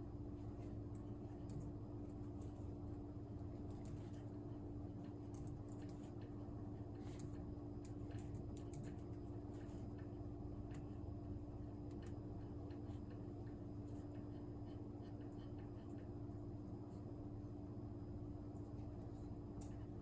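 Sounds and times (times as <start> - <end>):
steady low hum: 0.0 - 20.0
laptop keyboard typing: 5.2 - 6.2, 7.1 - 9.2.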